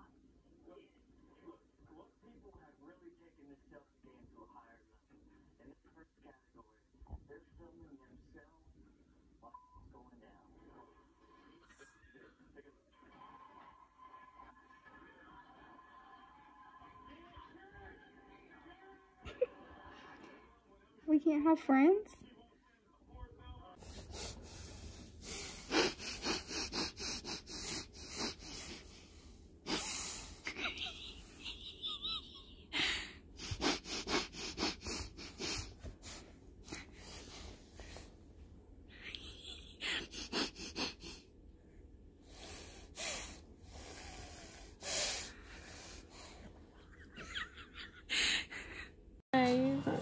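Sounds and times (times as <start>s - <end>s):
baby huffing and snorting: 23.8s - 29.0s, 29.7s - 30.6s, 33.4s - 38.1s, 39.8s - 41.2s, 42.3s - 46.4s.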